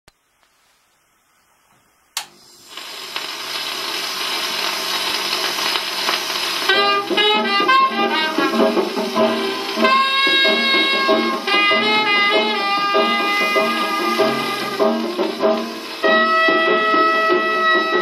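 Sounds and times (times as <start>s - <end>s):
record surface hiss: 0.1s - 18.0s
small jazz band playing: 6.6s - 18.0s.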